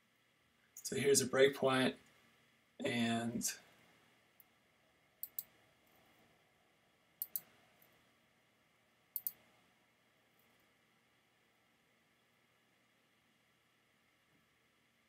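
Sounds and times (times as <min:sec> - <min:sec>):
computer control clicks: 0:05.2 - 0:05.5, 0:07.2 - 0:07.5, 0:09.2 - 0:09.4.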